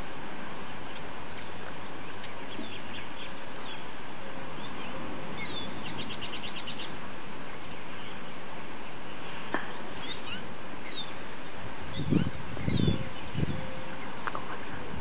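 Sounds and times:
small birds chirping: 0.0 - 15.0
steady outdoor hiss: 0.0 - 15.0
bird trill: 4.6 - 7.0, 9.9 - 11.2, 11.9 - 14.2.

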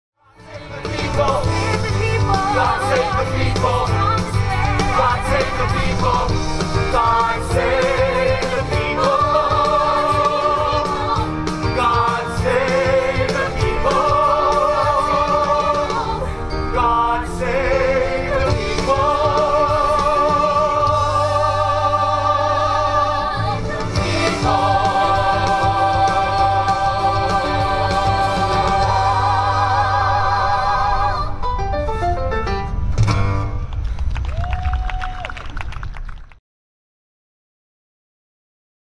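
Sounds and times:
band playing: 0.4 - 31.0
cast singing in harmony: 0.5 - 31.4.

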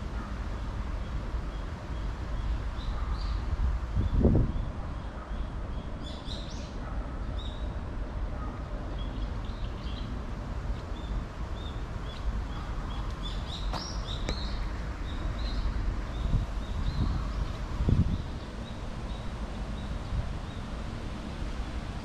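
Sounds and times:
small birds chirping: 8.4 - 20.7.

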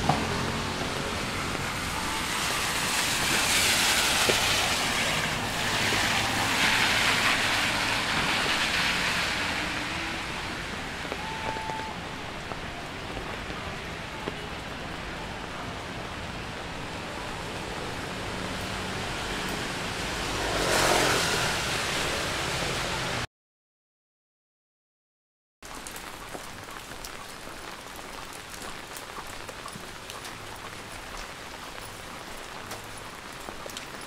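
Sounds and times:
rainy street traffic noise: 0.0 - 23.3, 25.6 - 34.0
tyres hissing on wet road: 0.0 - 23.3.

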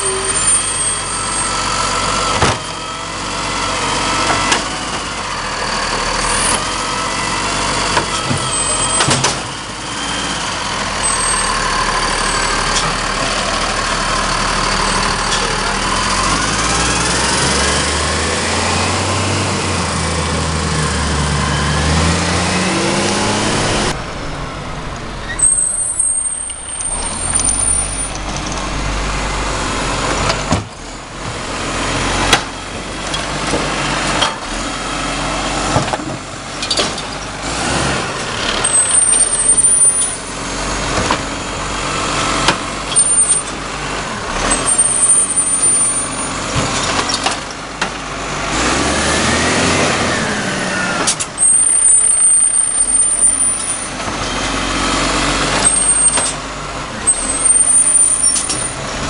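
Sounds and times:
garbage truck diesel engine: 0.0 - 59.0
knocks and clunks of bins: 2.3 - 2.7, 30.1 - 31.4, 35.7 - 37.2
brief high squeals: 25.2 - 28.2.

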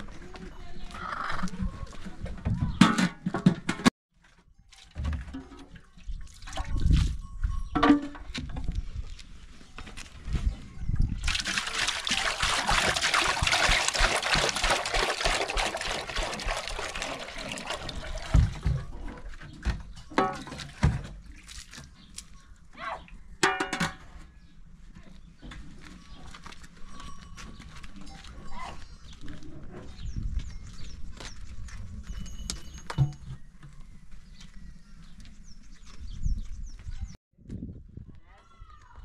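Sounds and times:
water pouring into metal pot: 11.2 - 18.6
pot and lid clanking: 23.4 - 24.0.

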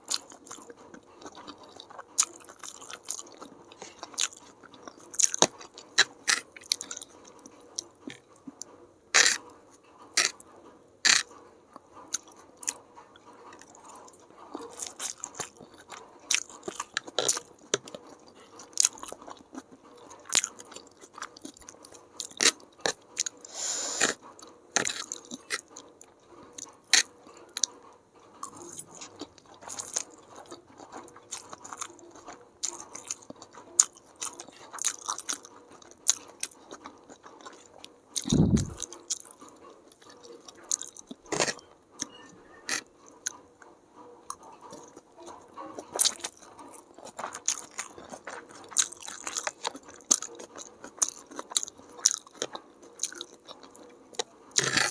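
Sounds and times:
person chewing noodles: 0.0 - 54.9.

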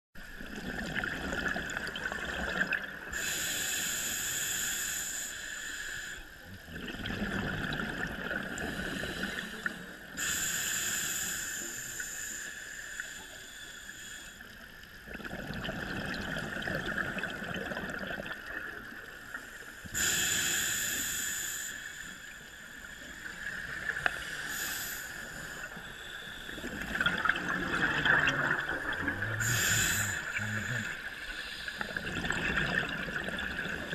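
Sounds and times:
gurgling exhaled bubbles: 0.2 - 3.3, 6.6 - 9.3, 15.0 - 19.0, 26.5 - 33.9
regulator hissing inhale: 3.1 - 6.5, 8.6 - 14.9, 19.2 - 26.9, 28.8 - 32.1.

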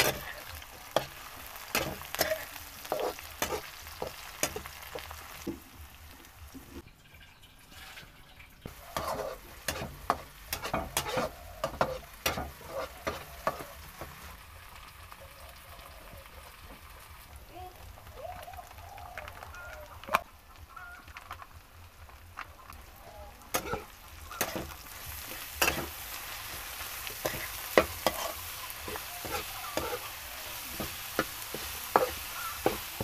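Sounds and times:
metal spatula scraping a wok: 0.0 - 5.1, 7.7 - 13.8, 23.5 - 33.0
food sizzling in hot oil: 0.0 - 33.0.

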